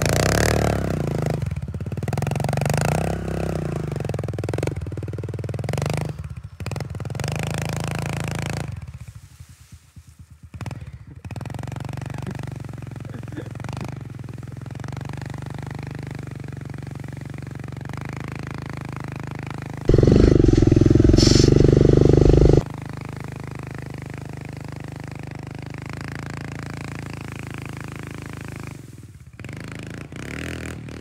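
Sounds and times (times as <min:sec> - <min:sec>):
small motorbike engine running: 0:00.0 - 0:31.0
loud rough noise: 0:19.9 - 0:22.7.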